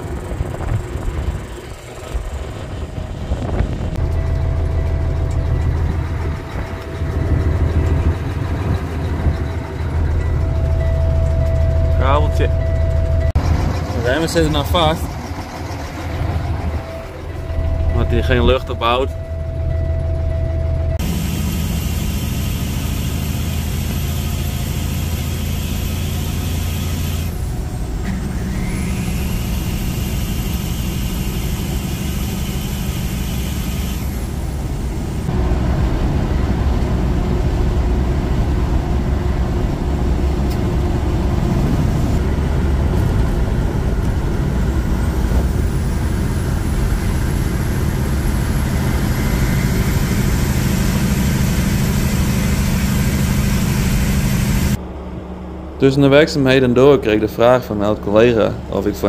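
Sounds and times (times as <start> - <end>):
diesel truck engine running: 0.0 - 59.0
tyre and road noise: 0.0 - 59.0.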